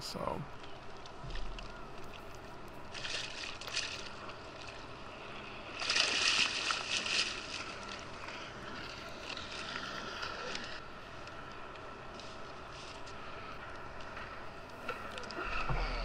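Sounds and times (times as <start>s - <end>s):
water splashing: 0.2s - 11.3s
water lapping at hull: 0.6s - 16.0s.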